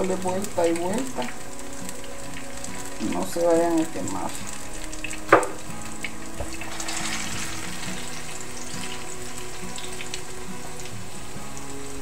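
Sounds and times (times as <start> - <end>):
plantains frying in oil: 0.0 - 12.0
small pops of oil: 4.9 - 6.6.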